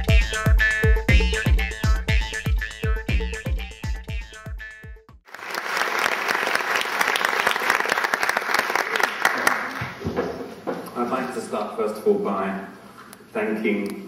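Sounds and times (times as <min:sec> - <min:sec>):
electronic music with thumping beat: 0:00.0 - 0:05.2
audience applauding: 0:05.3 - 0:10.0
man speaking: 0:11.0 - 0:14.0.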